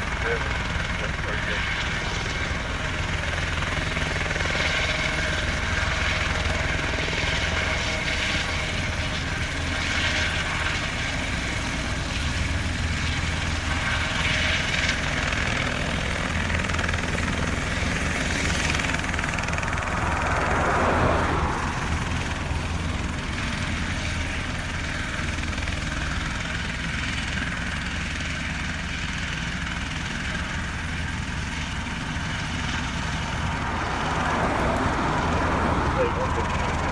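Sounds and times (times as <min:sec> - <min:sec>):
helicopter rotor and engine: 0:00.0 - 0:36.9
pickup truck passing: 0:19.6 - 0:22.8, 0:33.0 - 0:36.9.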